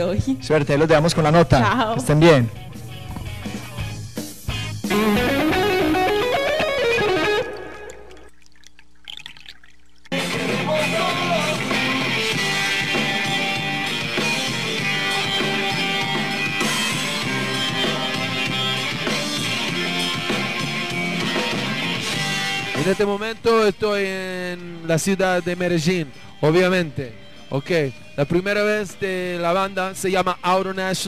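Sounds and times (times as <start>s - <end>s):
rock band playing live: 1.8s - 8.1s, 10.1s - 23.2s.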